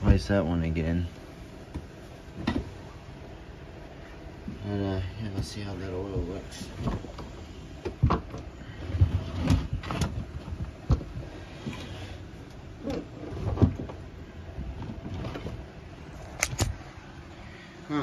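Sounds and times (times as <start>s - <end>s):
handling knocks and scrapes: 6.2s - 12.2s, 12.8s - 16.7s.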